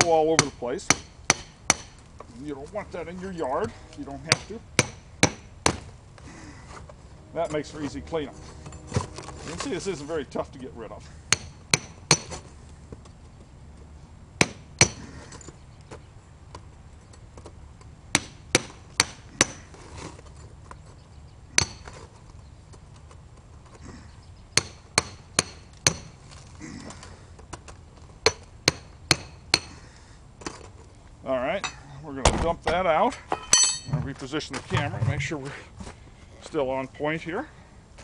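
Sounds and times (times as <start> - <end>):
hammer striking steel chisel: 0.0 - 2.0, 11.3 - 12.3, 24.6 - 26.1, 28.3 - 29.7.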